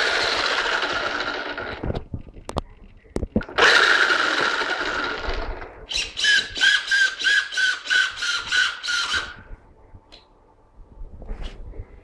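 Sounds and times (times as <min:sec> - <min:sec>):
motor throttle blips: 0:03.4 - 0:05.7
electric motor whining: 0:03.5 - 0:07.6.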